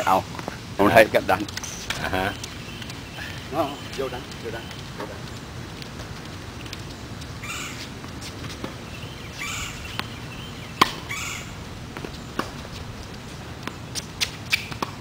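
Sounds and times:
bird calling: 1.6s - 5.4s, 7.3s - 13.0s
ball bouncing: 9.9s - 10.2s, 10.8s - 11.1s, 11.9s - 15.0s
tennis racket hitting ball: 10.8s - 11.1s, 12.0s - 12.8s.

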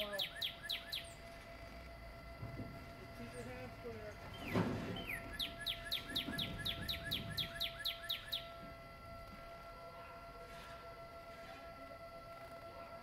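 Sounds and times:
songbird whistling: 0.0s - 1.3s, 4.3s - 8.6s
faint steady hum: 0.0s - 13.0s.

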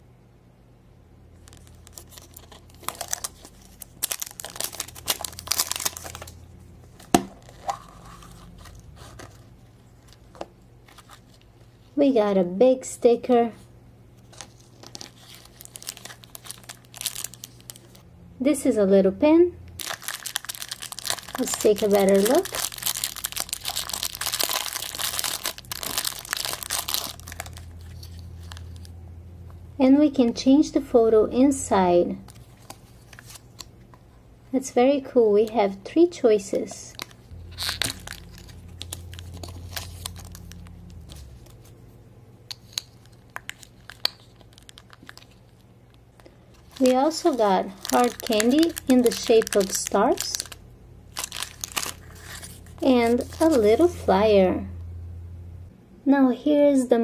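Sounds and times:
crinkly wrapper tearing: 1.4s - 6.4s, 14.2s - 18.0s, 19.8s - 28.9s, 36.9s - 41.7s, 42.5s - 53.9s.

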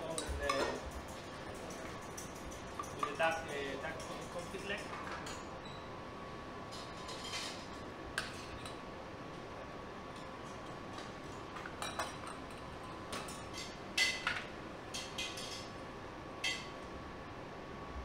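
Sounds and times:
utensils clinking on metal trays: 0.0s - 5.5s, 6.7s - 8.8s, 11.6s - 15.8s
faint kitchen hum: 0.0s - 18.0s.

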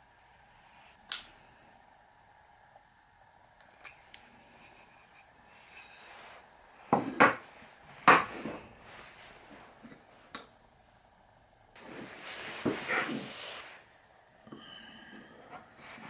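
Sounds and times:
wood knocking on workbench: 6.9s - 7.4s.

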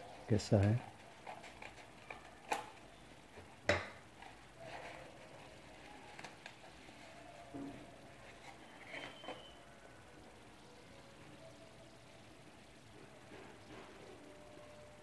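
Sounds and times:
faint paper rustling: 4.2s - 9.6s.

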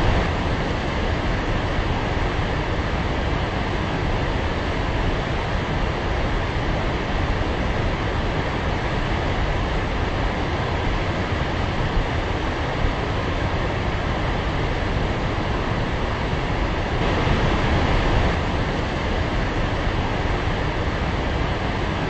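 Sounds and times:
waterfall rushing: 16.9s - 21.9s.

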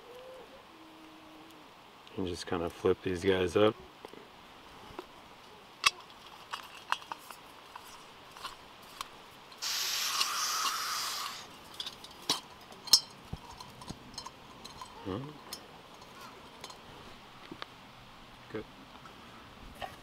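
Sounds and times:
gas rushing hiss: 9.6s - 11.5s.

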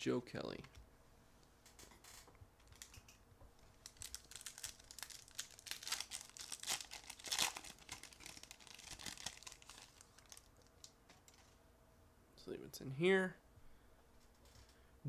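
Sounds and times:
foil wrapper crinkling and tearing: 2.6s - 2.9s, 3.8s - 11.4s.

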